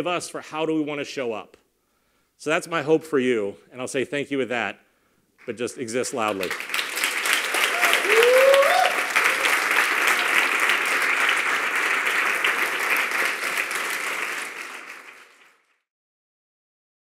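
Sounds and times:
audience applauding: 5.4 - 15.8.

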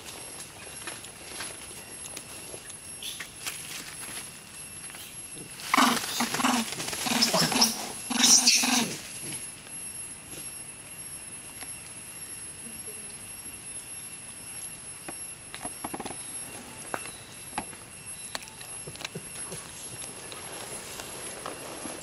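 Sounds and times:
insects humming: 0.0 - 22.0
rustling on dry leaves: 19.1 - 22.0.

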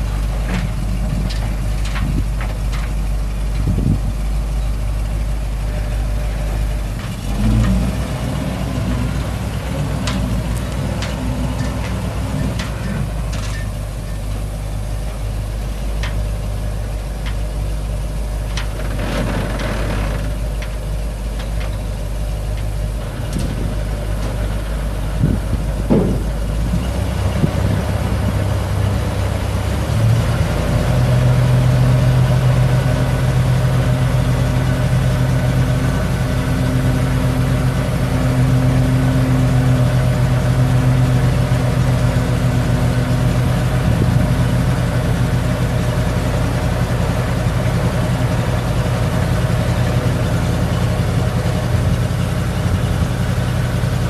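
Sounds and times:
engine knocks: 0.0 - 4.8, 18.4 - 54.0
truck engine idling: 0.0 - 54.0.

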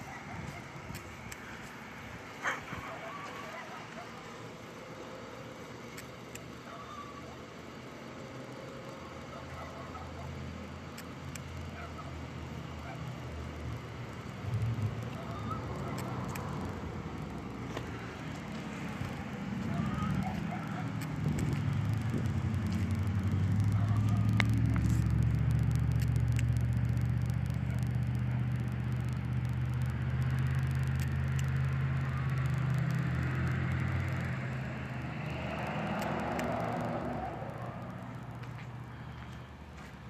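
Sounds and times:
low engine hum: 0.0 - 40.0
faint clicks: 20.2 - 34.4, 35.5 - 39.4.

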